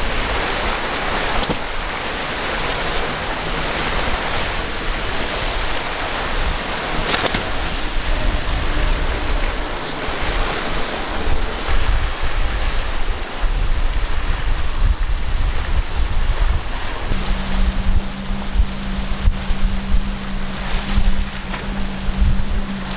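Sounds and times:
boat wake spray: 0:00.0 - 0:22.9
surf rushing: 0:00.0 - 0:22.9
wind buffeting microphone: 0:00.0 - 0:22.9.

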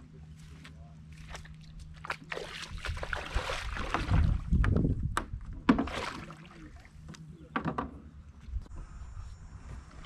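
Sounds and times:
water sloshing and splashing: 0:01.1 - 0:04.8, 0:05.6 - 0:07.1
sharp knocks on boat: 0:03.9 - 0:06.0.

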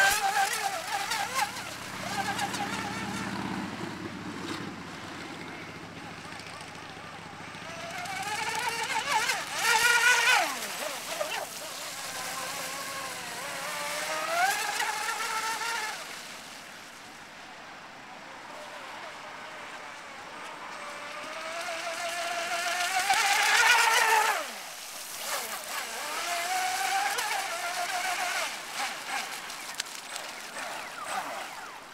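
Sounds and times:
electric motor whining: 0:00.0 - 0:03.9, 0:07.4 - 0:16.1, 0:20.7 - 0:31.9.

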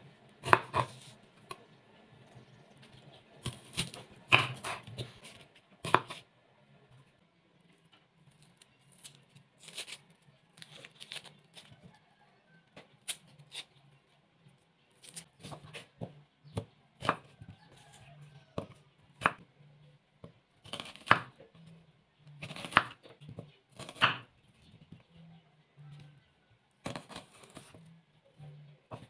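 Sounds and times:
onion skin rustling: 0:08.3 - 0:11.7.

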